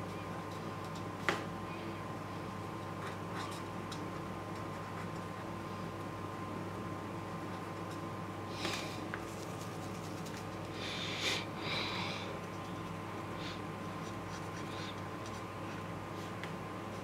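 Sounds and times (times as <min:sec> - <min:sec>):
steady electrical hum: 0:00.0 - 0:17.0
marker scratching on paper: 0:14.0 - 0:15.8.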